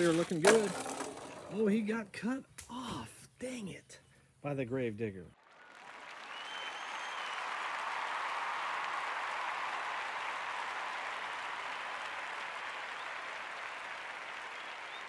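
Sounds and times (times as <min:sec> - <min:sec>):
crowd applause: 0:05.4 - 0:15.0.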